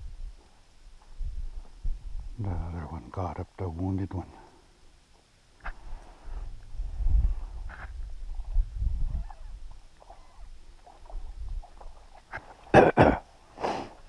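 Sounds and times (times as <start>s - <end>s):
wind buffeting the microphone: 0.0s - 0.4s, 1.0s - 2.6s, 5.6s - 12.5s.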